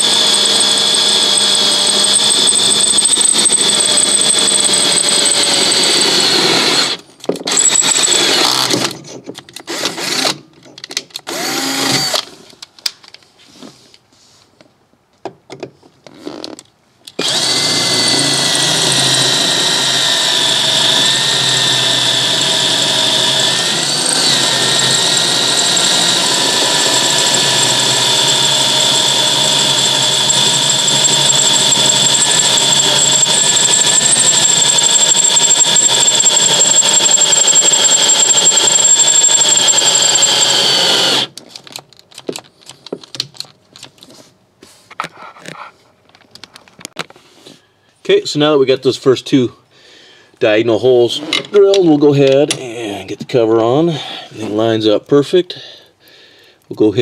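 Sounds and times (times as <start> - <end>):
cordless drill boring through steel: 0.0 - 8.8, 9.7 - 10.4, 11.3 - 12.3, 17.2 - 41.4.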